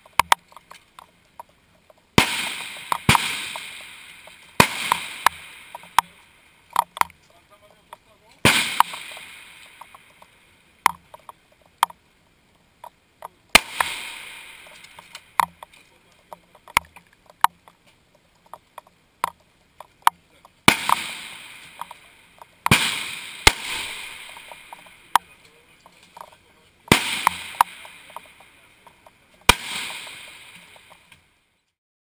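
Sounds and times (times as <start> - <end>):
handling clicks and knocks: 0.0 - 2.2, 6.7 - 9.2, 9.8 - 12.0, 14.7 - 21.0, 23.9 - 26.4
rifle shots with rolling echo: 2.1 - 7.0, 8.4 - 10.4, 13.5 - 15.8, 20.0 - 31.1.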